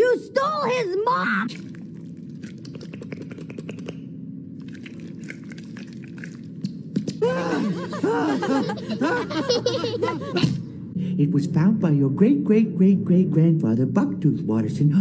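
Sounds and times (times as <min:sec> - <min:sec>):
low steady hum: 0:00.0 - 0:15.0
cartoon voices laughing: 0:07.2 - 0:10.7.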